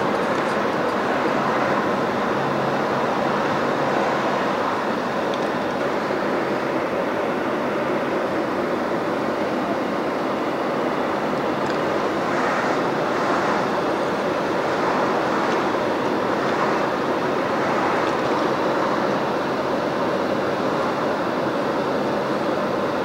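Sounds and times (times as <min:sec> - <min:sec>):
car road noise from inside: 0:00.0 - 0:08.2, 0:08.9 - 0:23.0.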